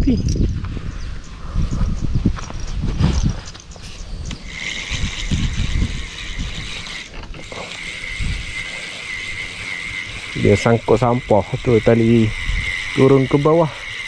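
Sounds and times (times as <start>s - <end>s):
steady high buzz: 0.6s - 14.0s
fishing reel gears clicking: 3.6s - 14.0s.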